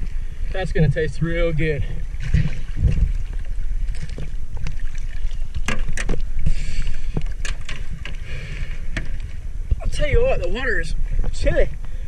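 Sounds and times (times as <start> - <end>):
water sloshing around boat: 0.0 - 11.8
wind buffeting microphone: 0.0 - 12.0.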